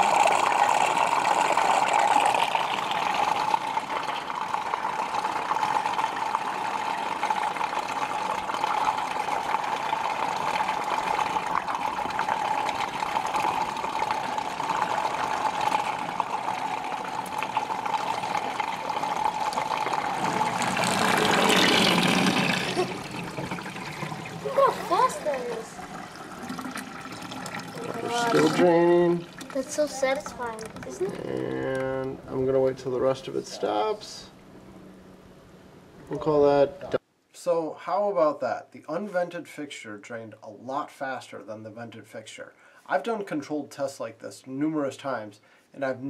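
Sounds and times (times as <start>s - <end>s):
air drawn through drain trap: 0.0s - 32.9s
water draining through sink traps: 0.0s - 33.9s.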